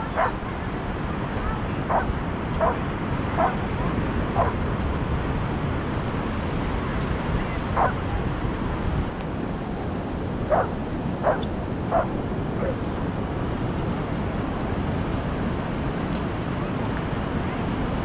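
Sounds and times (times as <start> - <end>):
dog barking: 0.0 - 0.4, 1.9 - 2.8, 3.4 - 3.6, 4.4 - 4.6, 7.8 - 8.0, 10.5 - 12.8
steady rushing background noise: 0.0 - 18.0.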